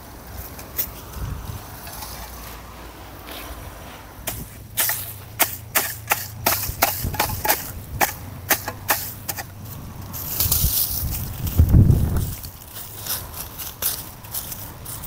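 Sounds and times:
scraping rustle: 0.3s - 15.0s
hoe chopping dry soil: 4.2s - 15.0s.

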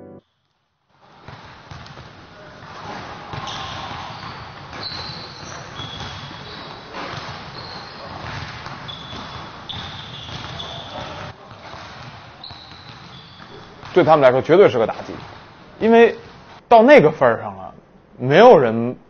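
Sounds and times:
basketball bouncing: 1.2s - 14.2s
sneakers squeaking on court: 1.2s - 14.2s.

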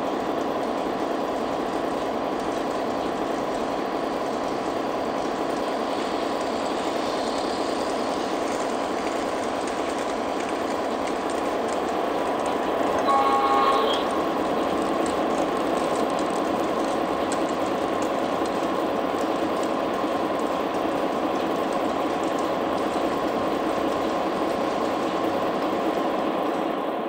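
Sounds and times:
light clicks over track: 0.2s - 25.8s
model train motor whirring: 13.0s - 14.2s.

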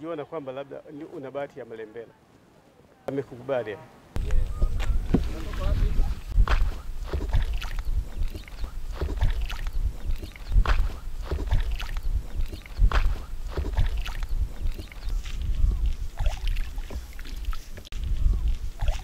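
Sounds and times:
wind rumble on microphone: 4.2s - 19.0s
hands splashing water: 6.4s - 15.3s, 16.1s - 17.8s, 18.8s - 19.0s.

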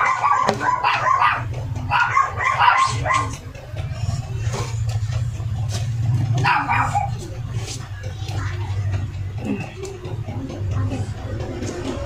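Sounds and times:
dog barking: 0.0s - 3.4s, 6.4s - 7.2s.

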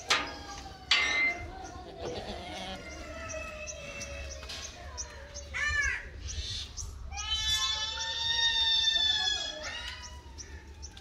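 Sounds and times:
goats bleating: 1.8s - 3.1s.

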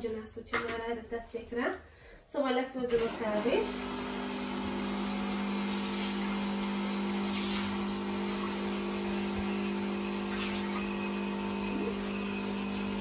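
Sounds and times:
espresso machine pump humming: 3.0s - 13.0s.

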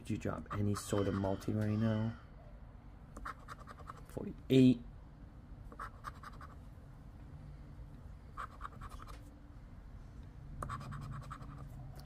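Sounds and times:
scratching lottery ticket: 3.2s - 4.1s, 5.8s - 6.6s, 8.4s - 9.2s, 10.6s - 11.8s.

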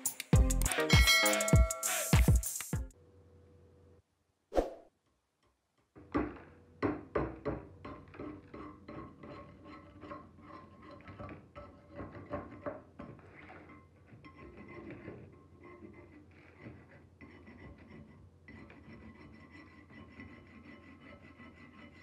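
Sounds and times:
metal tool scraping rust: 8.2s - 22.0s.

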